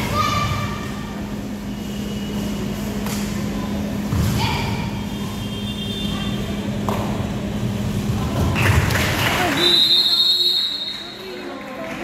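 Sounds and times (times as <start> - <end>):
steady low hum: 0.0 - 9.5.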